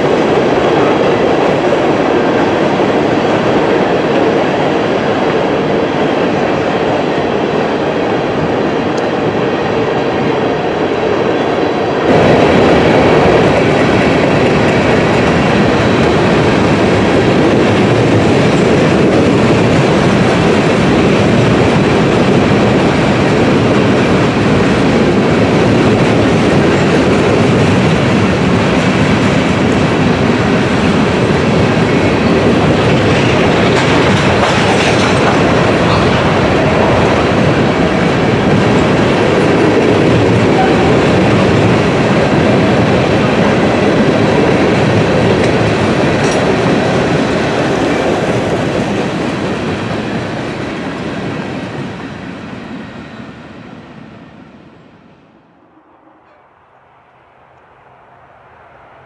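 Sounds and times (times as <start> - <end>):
freight train rumbling over bridge: 0.0 - 59.0
wheels clacking over rail joints: 32.1 - 51.4.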